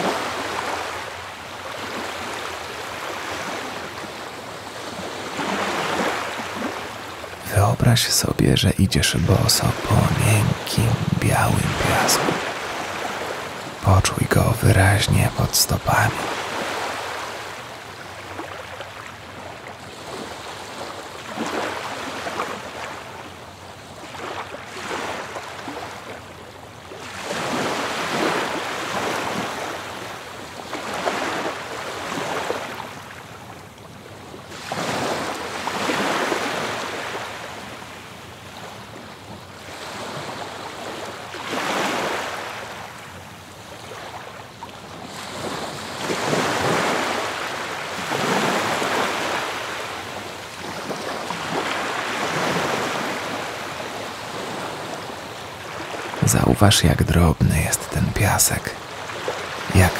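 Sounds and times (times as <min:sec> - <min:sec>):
ocean surf washing ashore: 0:00.0 - 0:23.2, 0:45.0 - 0:56.4.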